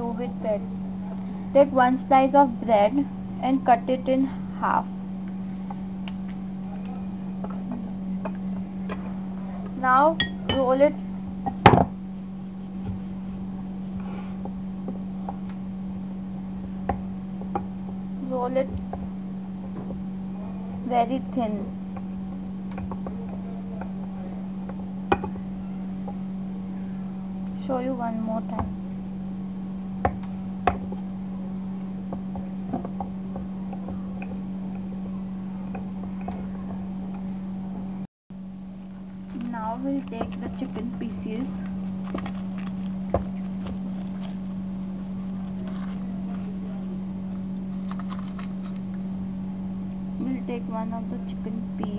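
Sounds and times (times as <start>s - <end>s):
low hum: 0.0s - 51.9s
rolling pin knocking on wood: 25.1s - 25.4s.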